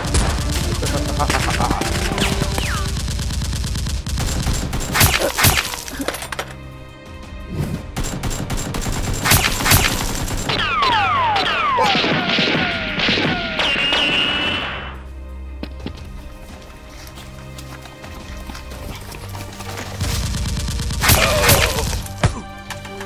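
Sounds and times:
gunshots: 0:00.0 - 0:06.1, 0:07.9 - 0:15.0, 0:20.0 - 0:22.3
background music: 0:00.0 - 0:23.0.

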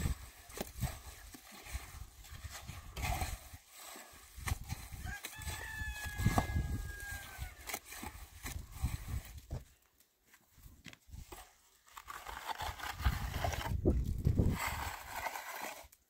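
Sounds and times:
trowel scraping wet mortar: 0:00.0 - 0:09.6, 0:11.1 - 0:16.0
rooster crowing: 0:05.0 - 0:07.6.

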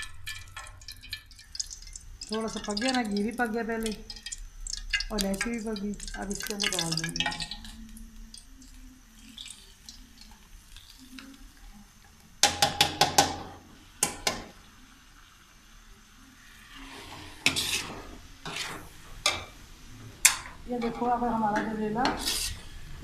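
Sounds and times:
faint sizzle: 0:00.0 - 0:23.0
metal spatula scraping a pan: 0:16.6 - 0:19.5, 0:20.2 - 0:22.9.

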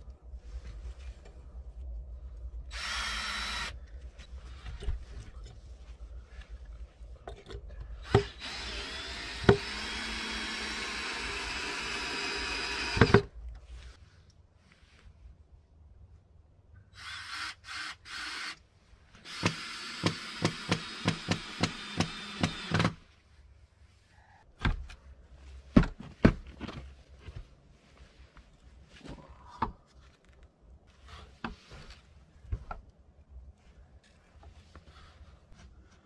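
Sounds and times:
power drill drilling into wood: 0:02.7 - 0:03.7, 0:08.0 - 0:13.3, 0:17.0 - 0:18.6, 0:19.3 - 0:23.0.

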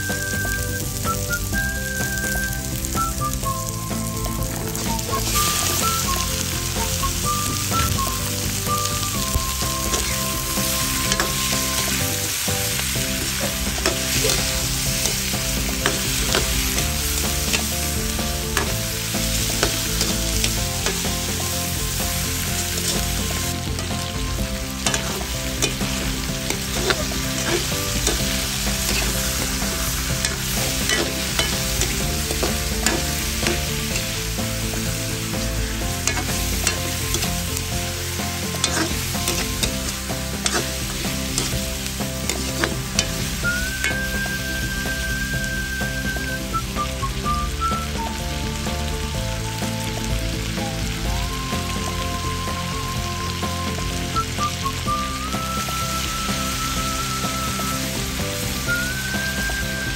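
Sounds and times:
chicken sizzling in a wok: 0:00.0 - 0:59.9
metal spatula scraping a pan: 0:24.8 - 0:34.2, 0:35.3 - 0:43.3.

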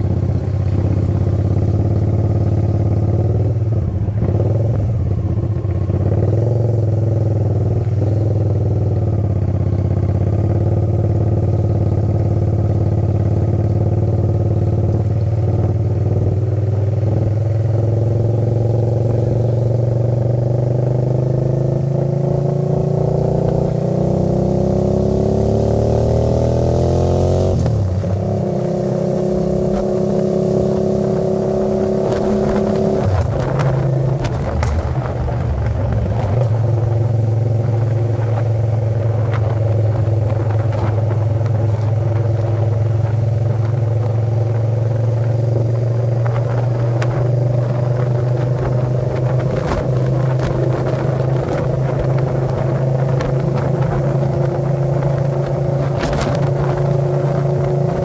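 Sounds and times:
motorcycle engine running: 0:00.0 - 0:58.0
clatter: 0:31.0 - 0:58.0.

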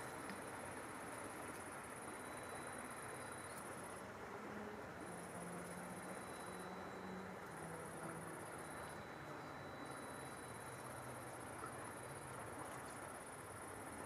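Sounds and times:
steady low hiss: 0:00.0 - 0:14.0
high-pitched insect trill: 0:05.6 - 0:11.2.

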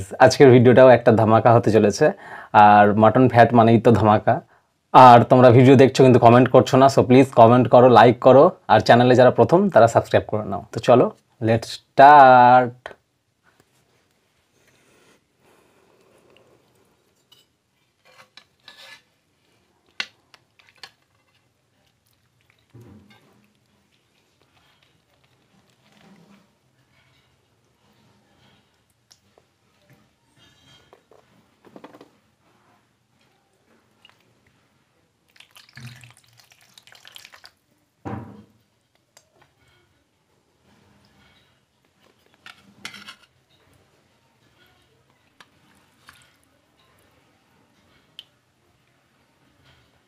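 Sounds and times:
spoon scraping metal pan: 0:17.2 - 0:19.2, 0:22.6 - 0:23.7, 0:30.3 - 0:31.1, 0:42.3 - 0:43.8
metal spoon scraping a pot: 0:17.2 - 0:21.7, 0:22.5 - 0:28.8, 0:30.3 - 0:31.3, 0:42.3 - 0:46.9.

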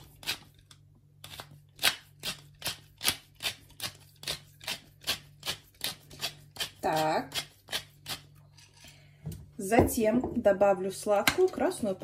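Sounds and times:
pepper mill grinding peppercorns: 0:00.0 - 0:08.9.

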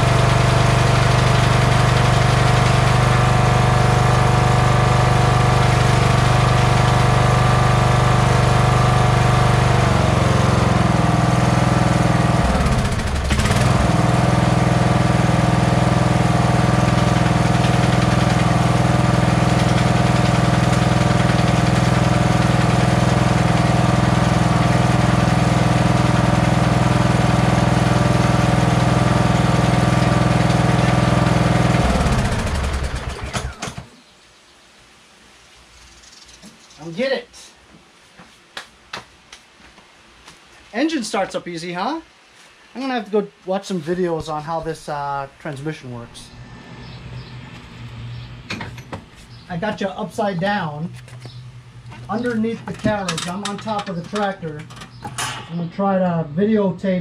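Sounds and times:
lawn tractor engine idling: 0:00.0 - 0:33.9, 0:51.8 - 0:56.0.

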